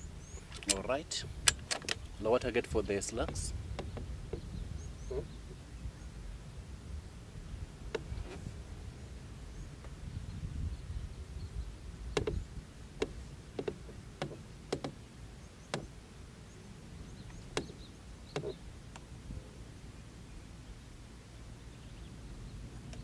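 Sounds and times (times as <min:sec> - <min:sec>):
sharp clicks and knocks: 0:00.4 - 0:02.1, 0:03.0 - 0:04.5, 0:12.2 - 0:12.4, 0:13.0 - 0:15.0, 0:15.7 - 0:15.9, 0:17.3 - 0:19.0.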